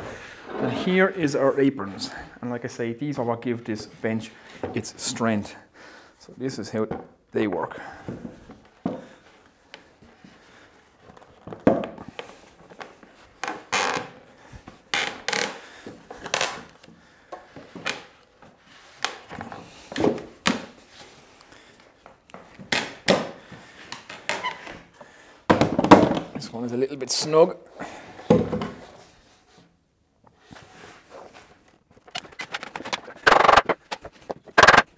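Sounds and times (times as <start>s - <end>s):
wood scraping: 0.1s - 1.6s, 30.5s - 34.9s.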